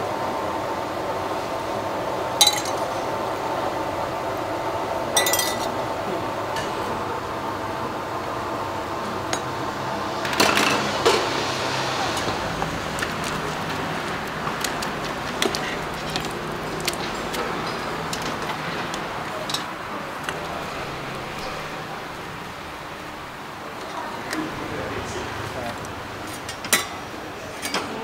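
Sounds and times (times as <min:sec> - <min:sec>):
metal utensils and pots clinking: 0:02.4 - 0:03.0, 0:05.2 - 0:05.7, 0:12.0 - 0:22.2, 0:25.6 - 0:28.0.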